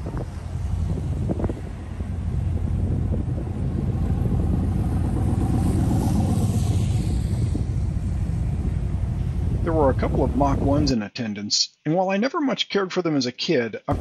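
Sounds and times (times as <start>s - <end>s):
car engine rumbling: 0.0s - 10.9s.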